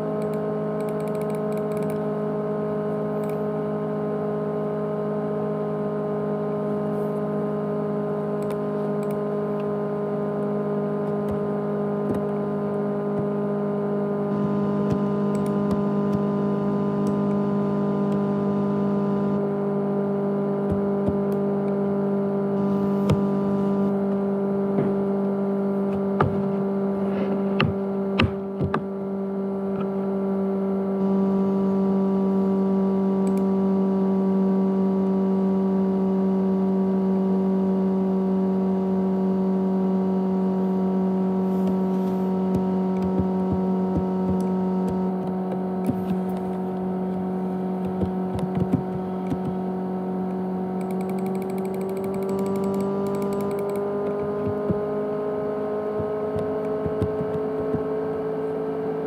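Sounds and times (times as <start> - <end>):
hard drive whirring hum: 0.0 - 59.0
sharp clicks: 0.2 - 2.0, 50.8 - 54.7.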